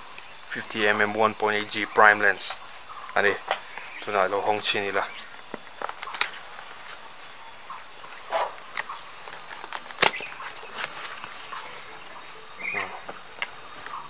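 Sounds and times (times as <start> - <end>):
high insect drone: 0.0 - 14.0
cardboard flaps rustling and snapping: 5.3 - 14.0
paper seal tearing: 8.1 - 11.7.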